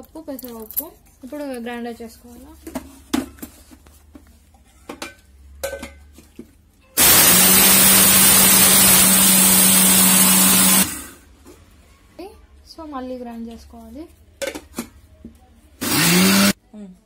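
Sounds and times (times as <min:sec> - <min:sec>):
mixer grinder grinding lentils: 0:07.0 - 0:11.2, 0:15.8 - 0:16.6.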